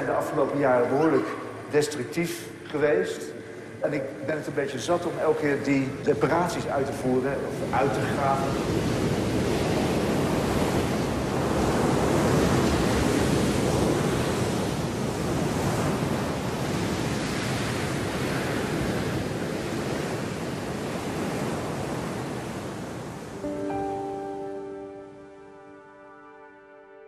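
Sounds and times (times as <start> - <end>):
strong wind blowing: 7.5 - 24.1
surf breaking on beach: 7.8 - 23.8.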